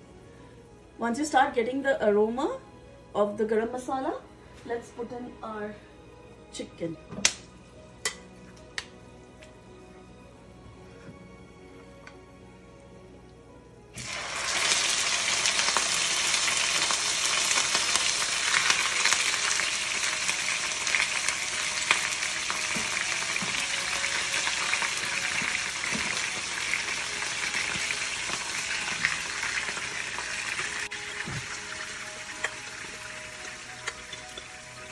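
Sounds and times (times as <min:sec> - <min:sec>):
chicken sizzling in hot fat: 0:14.0 - 0:34.9.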